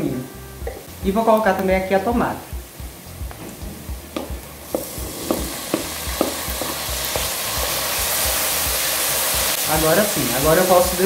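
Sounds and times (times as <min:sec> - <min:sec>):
food sizzling in hot fat: 0:00.0 - 0:11.0
wooden spoon knocking against pot: 0:04.1 - 0:07.3.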